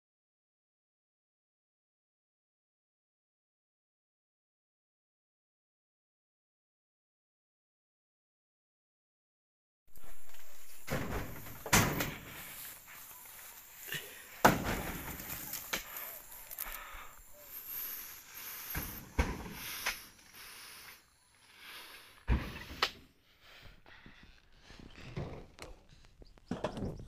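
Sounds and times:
heavy thuds of fruit bunches: 10.8s - 13.0s, 13.9s - 16.0s, 18.6s - 20.1s, 22.2s - 23.0s.

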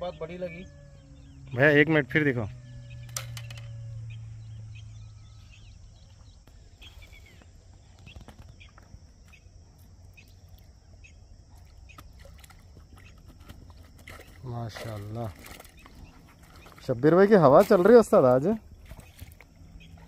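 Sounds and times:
low hum: 0.0s - 20.0s.

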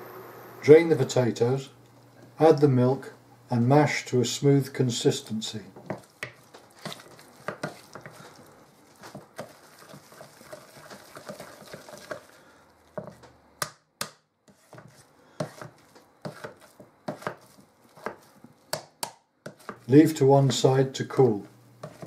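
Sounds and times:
potato masher knocking in pan: 5.8s - 8.2s, 9.0s - 12.3s, 13.0s - 20.6s, 21.8s - 22.0s.

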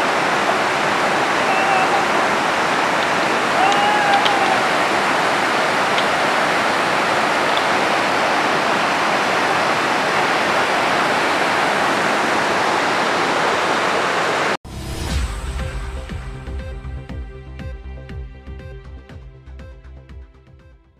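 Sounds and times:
stream rushing over boulders: 0.0s - 14.6s.

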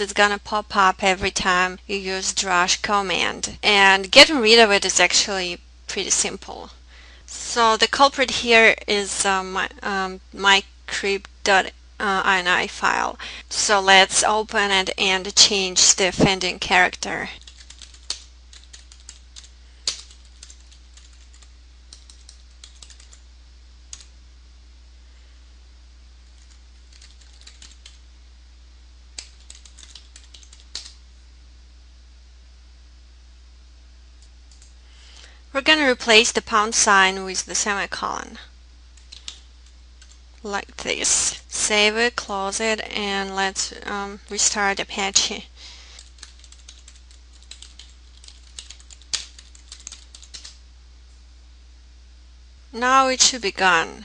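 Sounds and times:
low steady hum: 0.0s - 54.0s
computer keyboard typing: 17.4s - 23.2s, 26.3s - 28.0s, 29.2s - 31.0s, 34.5s - 34.7s, 39.0s - 39.4s, 40.0s - 40.2s, 46.0s - 50.6s.

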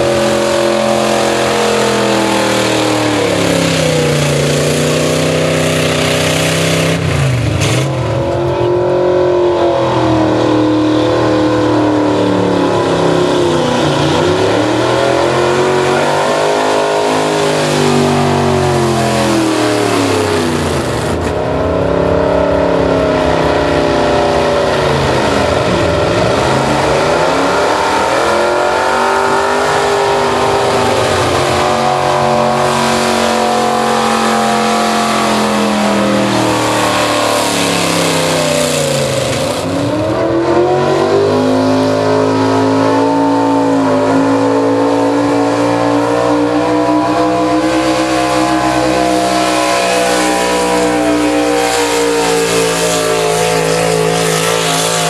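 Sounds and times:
truck engines revving hard: 0.0s - 55.0s.

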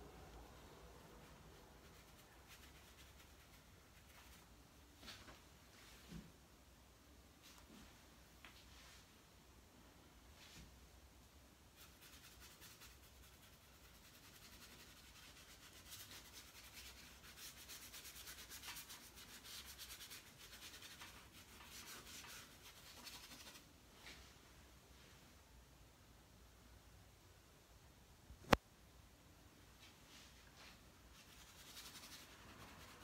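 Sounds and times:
paint scrubbing on paper: 1.3s - 4.5s, 11.8s - 23.6s, 31.2s - 33.0s.

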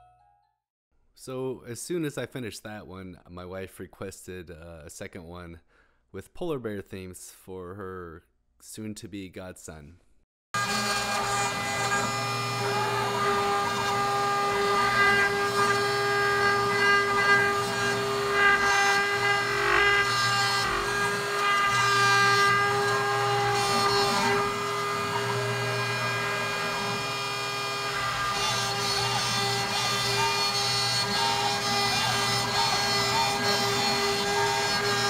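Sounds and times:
bit cutting wood: 10.6s - 35.0s
router spindle whine: 10.6s - 35.0s.

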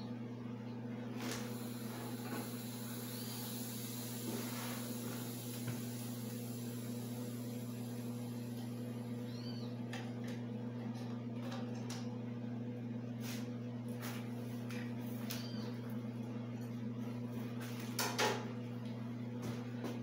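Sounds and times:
welding machine humming: 1.1s - 12.1s.

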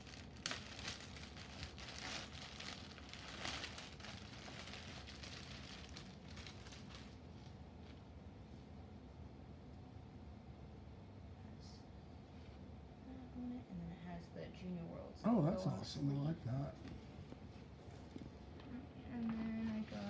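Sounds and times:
plastic bag crinkling and rustling: 0.0s - 8.0s.

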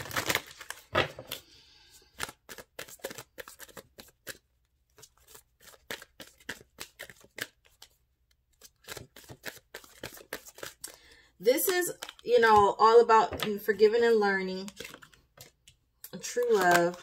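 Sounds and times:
cards being shuffled by hand: 0.0s - 13.8s, 14.6s - 17.0s.

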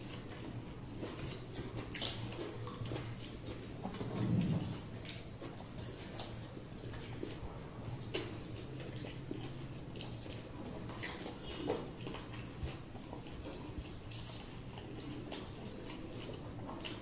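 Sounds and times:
person chewing: 0.0s - 17.0s
low hum: 3.8s - 5.1s.

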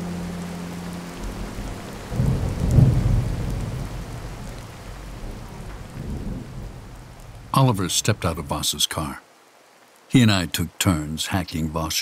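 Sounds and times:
steady rain: 0.0s - 12.0s
thunder rumbling: 1.2s - 8.4s.

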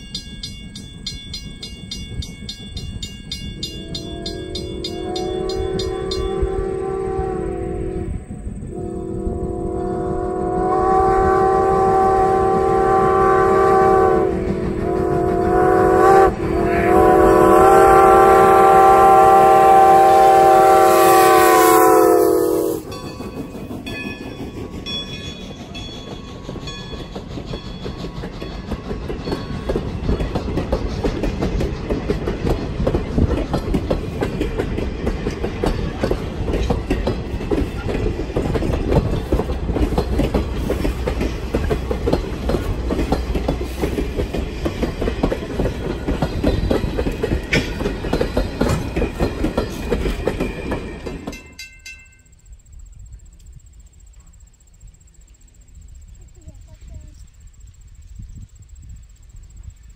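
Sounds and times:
train wheels clattering: 0.0s - 6.7s, 10.5s - 52.6s
steam whistle blast: 3.8s - 23.0s.

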